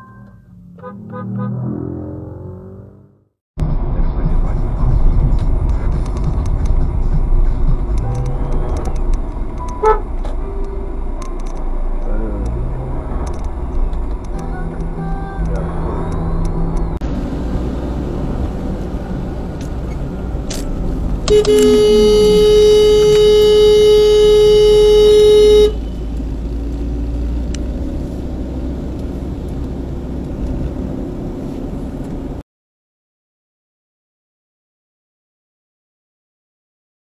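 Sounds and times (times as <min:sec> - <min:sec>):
engine and tyre drone inside car: 0:03.6 - 0:32.4
car horn held down: 0:21.3 - 0:25.8.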